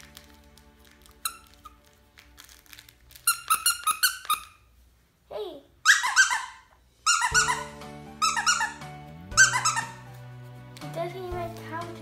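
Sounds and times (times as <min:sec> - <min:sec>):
dog toy squeaking: 0:03.2 - 0:04.7, 0:05.8 - 0:10.1.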